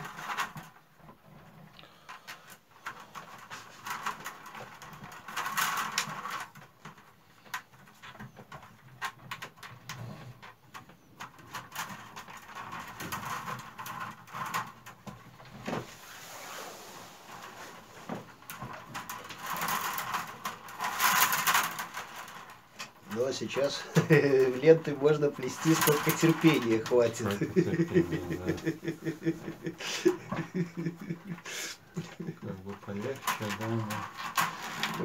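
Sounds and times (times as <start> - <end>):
wood strips clicking and snapping: 0.0 - 16.3, 17.0 - 35.0
willow strips rustling: 13.9 - 35.0.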